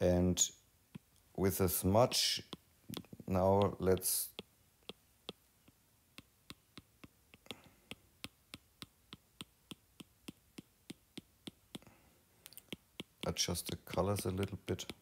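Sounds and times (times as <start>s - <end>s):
taps on a touchscreen: 2.4s - 11.9s, 12.5s - 15.0s.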